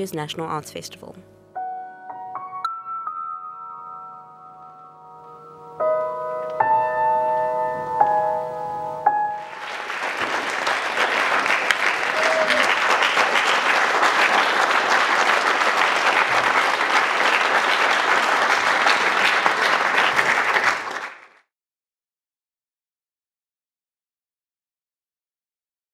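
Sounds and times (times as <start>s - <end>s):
audience applauding: 9.4s - 21.5s.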